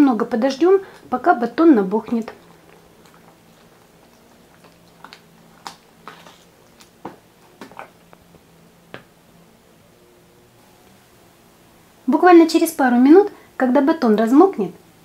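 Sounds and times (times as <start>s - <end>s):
spoon stirring in a plastic jug: 0.8s - 8.3s.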